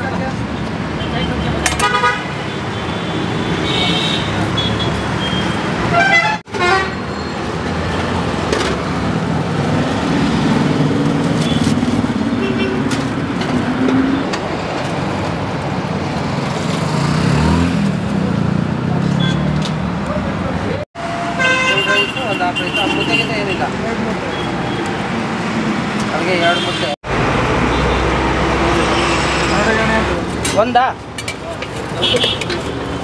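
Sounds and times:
busy road traffic: 0.0 - 33.0
vehicle horns tooting: 1.1 - 7.4, 21.2 - 24.9, 26.4 - 27.0, 32.0 - 32.7.

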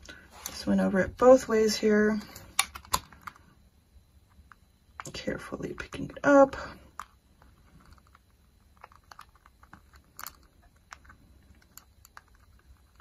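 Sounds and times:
plastic sheet crackling and clicking: 7.0 - 13.0.

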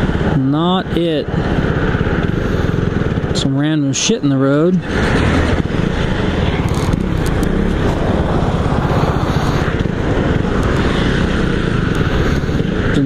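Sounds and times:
motorcycle engine running: 0.0 - 13.0
passing freeway traffic: 0.0 - 13.0
wind rushing: 4.3 - 13.0.

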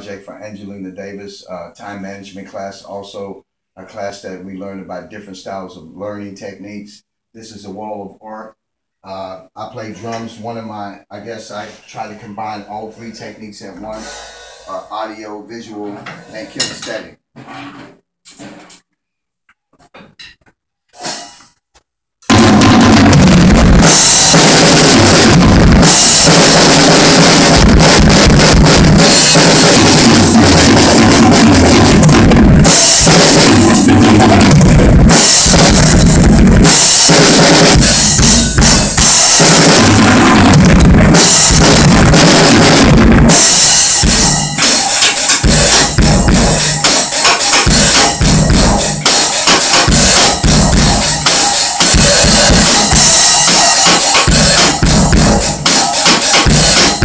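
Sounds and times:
drum kit played hard: 20.9 - 21.6, 22.2 - 57.0.

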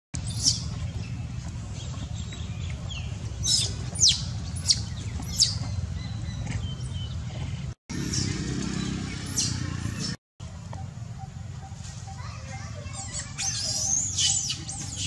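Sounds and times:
baby monkey squealing: 12.9 - 15.0.

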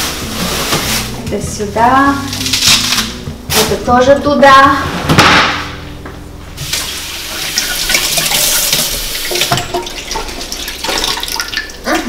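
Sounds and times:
faucet water splashing: 6.6 - 12.0.

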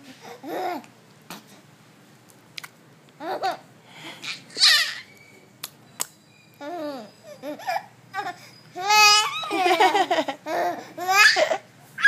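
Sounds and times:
baby high-pitched squeal: 4.2 - 5.4, 6.6 - 9.6.

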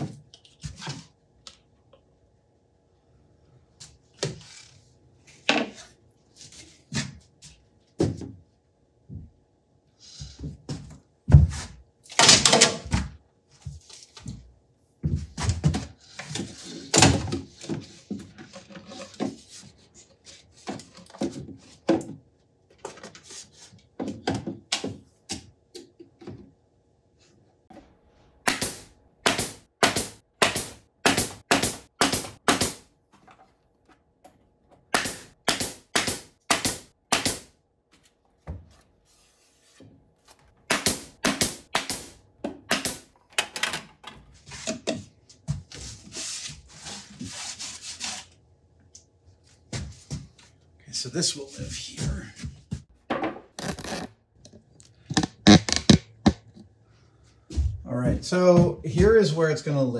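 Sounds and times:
pneumatic nail gun shots: 28.4 - 32.8, 34.9 - 37.5, 40.6 - 43.7
wooden knocks and thunks: 32.1 - 35.5, 38.0 - 39.0.

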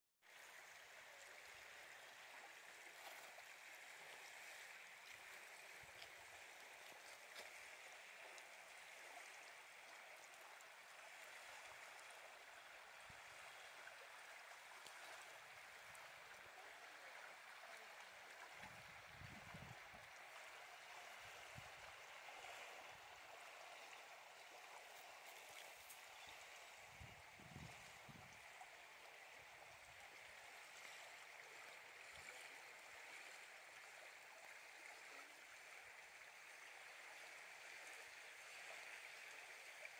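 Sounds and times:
water lapping against rocks: 2.5 - 16.6.

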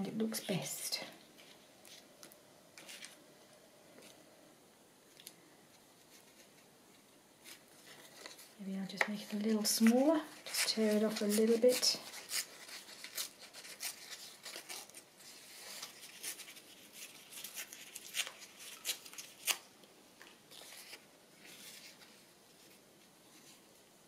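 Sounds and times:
paper crackling and ripping: 9.3 - 19.7, 20.5 - 22.8.

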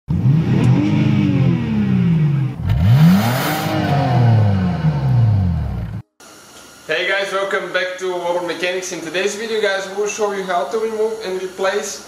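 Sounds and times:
car engine revving: 0.1 - 6.0.

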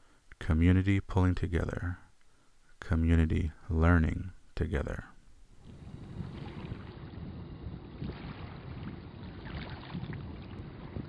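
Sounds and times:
wind: 0.0 - 11.0
water rushing: 5.6 - 7.2.

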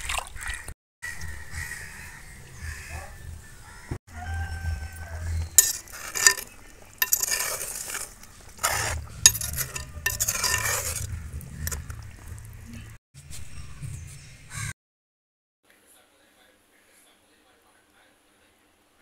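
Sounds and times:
ladle scraping a clay pot: 4.6 - 12.8
curry bubbling: 5.4 - 13.0.

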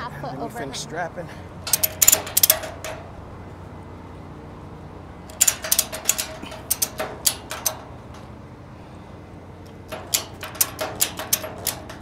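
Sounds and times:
ratchet strap clicking: 1.7 - 3.1, 5.3 - 8.3, 9.6 - 12.0.

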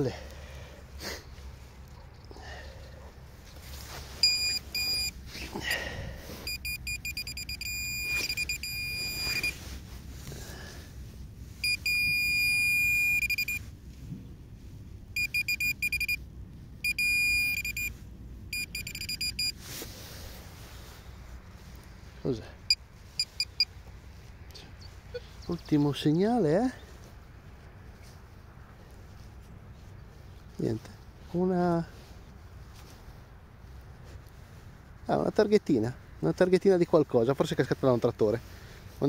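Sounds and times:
soil scuffing: 3.4 - 6.5, 8.0 - 10.8
high-pitched pinpointer beeping: 4.2 - 5.1, 6.5 - 9.6, 11.6 - 13.6, 15.2 - 16.2, 16.8 - 17.9, 18.5 - 19.6, 22.7 - 23.7.

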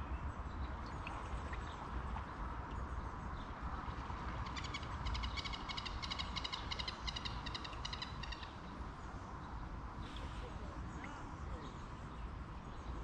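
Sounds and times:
songbird chattering: 4.5 - 8.6.

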